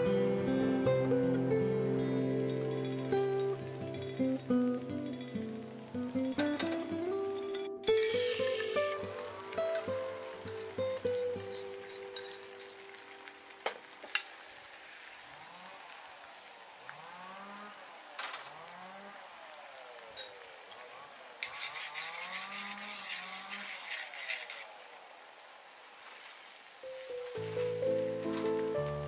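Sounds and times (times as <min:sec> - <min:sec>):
sauce sizzling in a pan: 0:01.4 - 0:16.5, 0:25.2 - 0:29.0.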